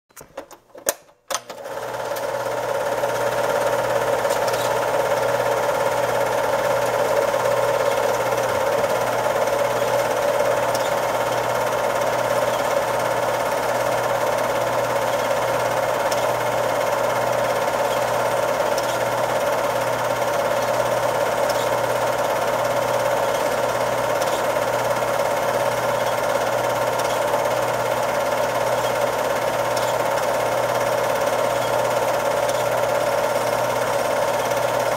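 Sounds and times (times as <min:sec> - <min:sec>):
projector switch click: 0:00.1 - 0:02.3, 0:03.5 - 0:27.3
projector motor whirr: 0:01.3 - 0:34.9
film advance clatter: 0:03.4 - 0:34.8.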